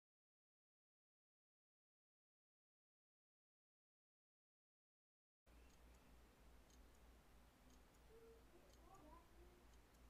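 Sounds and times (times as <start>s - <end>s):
soft clicks: 5.5s - 10.0s.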